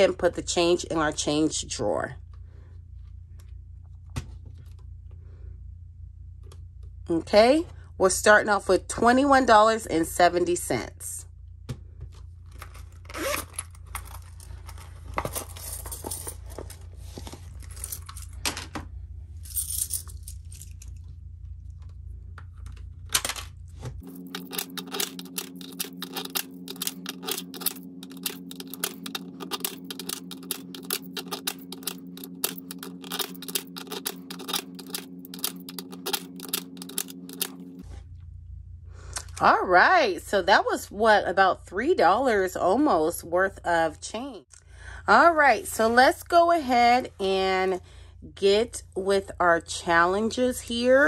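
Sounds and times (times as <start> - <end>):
steady low hum: 0.0 - 51.0
coins clinking: 15.2 - 16.4, 19.5 - 20.8, 24.0 - 37.8.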